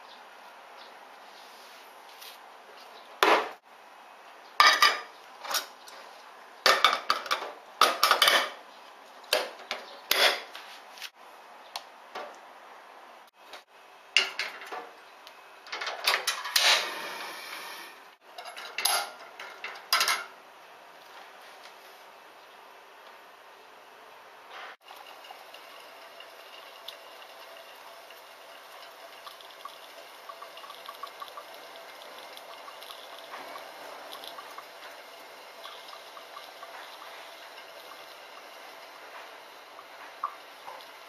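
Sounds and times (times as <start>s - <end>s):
metal espresso pot clattering: 6.7s - 8.6s, 32.7s - 37.9s.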